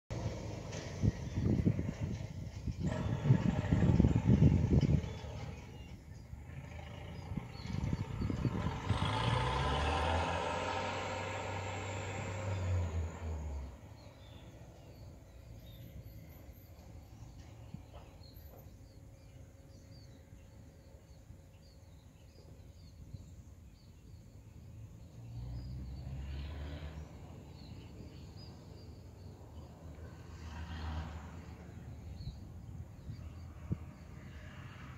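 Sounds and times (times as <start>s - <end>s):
small birds chirping: 13.6s - 30.4s.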